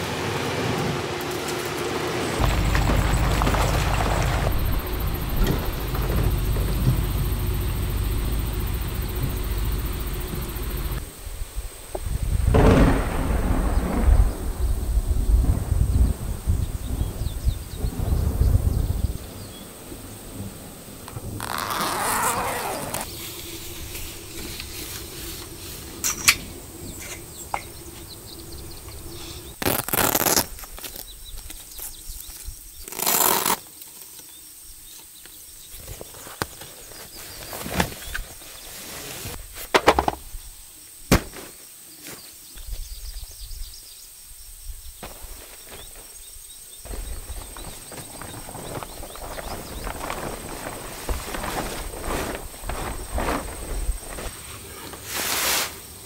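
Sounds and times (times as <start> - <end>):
faint steady buzz: 0.0 - 15.6, 19.1 - 30.5
footsteps on grass and dirt: 2.4 - 7.8, 21.2 - 32.2, 45.0 - 54.6
fabric awning rustling: 21.0 - 28.1, 29.0 - 31.0, 32.9 - 33.6, 35.9 - 39.6, 46.9 - 55.8
bag landing with thud and clatter: 41.1 - 41.6, 46.9 - 54.4.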